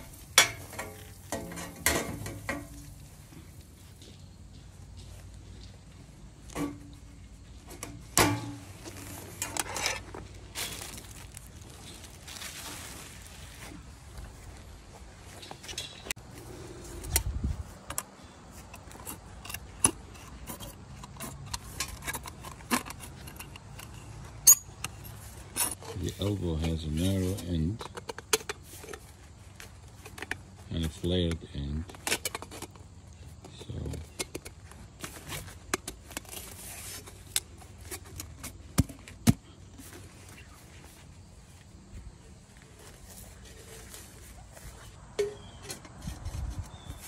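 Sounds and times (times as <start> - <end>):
light metal taps and scrapes: 0.0 - 10.3, 17.0 - 39.1, 42.8 - 47.0
sharp metal knocks: 7.8 - 8.7.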